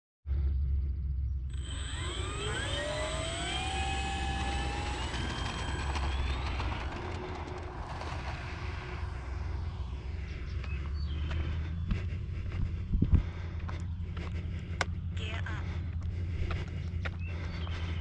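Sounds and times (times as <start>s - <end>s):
steady low rumble: 0.3s - 18.0s
model plane motors whining: 1.5s - 12.5s.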